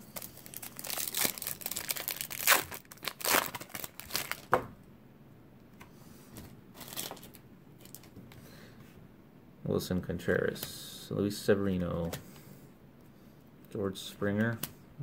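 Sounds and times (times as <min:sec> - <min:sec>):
foil wrapper crinkling and tearing: 0:00.0 - 0:04.5, 0:06.8 - 0:08.1.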